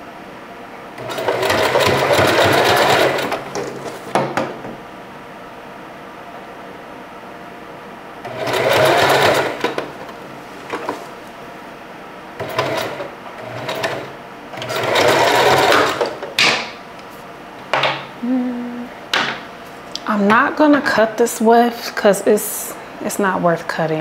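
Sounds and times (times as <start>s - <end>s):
sewing machine stitching: 1.0s - 4.0s, 8.2s - 10.1s, 12.4s - 16.2s.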